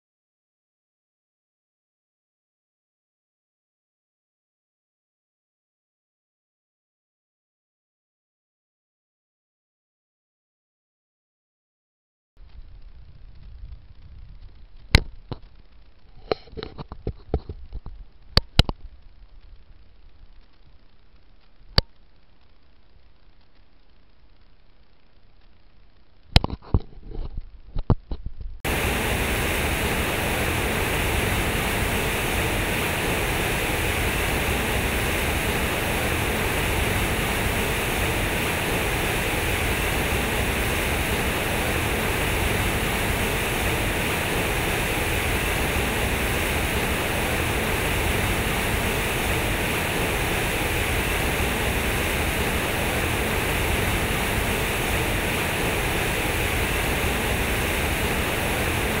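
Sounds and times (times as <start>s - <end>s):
fountain water gushing and splashing: 28.7s - 59.0s.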